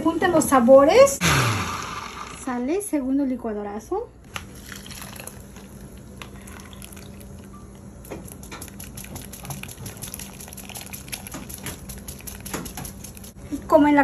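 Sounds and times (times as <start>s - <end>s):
sauce pouring and dripping: 4.4s - 7.6s, 8.2s - 13.4s.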